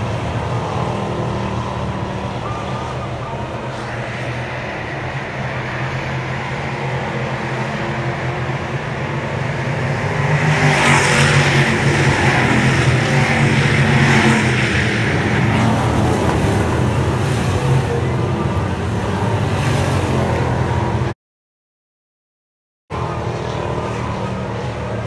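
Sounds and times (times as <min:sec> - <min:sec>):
cars passing by: 0:00.0 - 0:21.1, 0:22.9 - 0:25.0
stock car engines racing: 0:00.0 - 0:21.2, 0:22.9 - 0:25.0.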